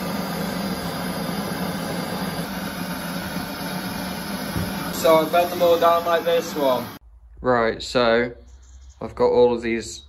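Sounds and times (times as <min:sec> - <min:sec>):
gas torch hissing: 0:00.0 - 0:07.0.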